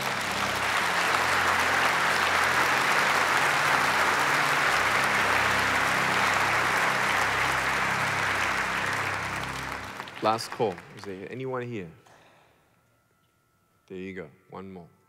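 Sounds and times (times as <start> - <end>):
congregation applauding: 0.0 - 11.8.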